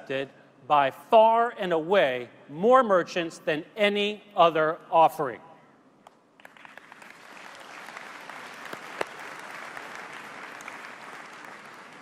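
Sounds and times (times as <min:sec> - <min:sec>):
large audience applauding: 0:06.4 - 0:12.0.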